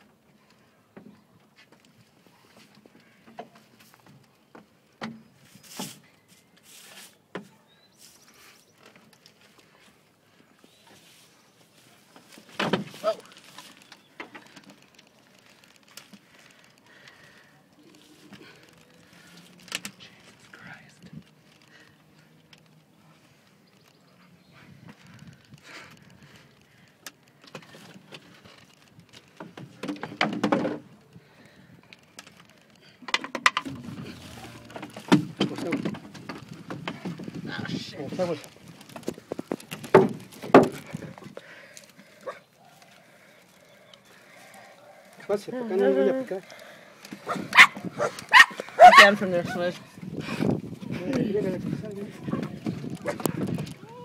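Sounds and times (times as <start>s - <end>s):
scraping rustles: 5.2s - 54.0s
knocks and clicks on wood: 33.0s - 33.9s, 38.9s - 41.0s
knocking and scraping: 33.0s - 41.4s.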